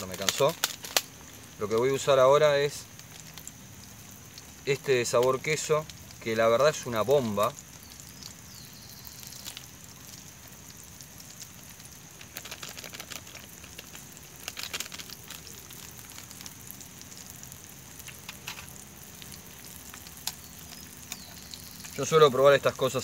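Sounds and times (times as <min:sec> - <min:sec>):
foil sachet crinkling: 0:00.0 - 0:03.6, 0:08.5 - 0:22.8
fish frying in hot oil: 0:00.0 - 0:23.0.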